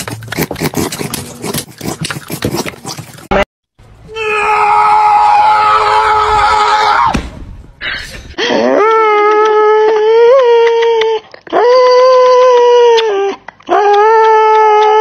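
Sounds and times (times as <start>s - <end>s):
person screaming: 4.1s - 7.1s.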